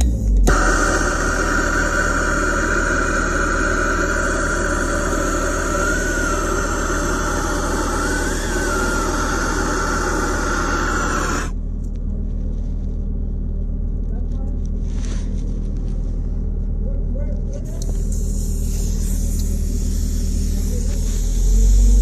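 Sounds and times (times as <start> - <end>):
gas torch hissing: 0.0 - 11.6, 17.7 - 22.0.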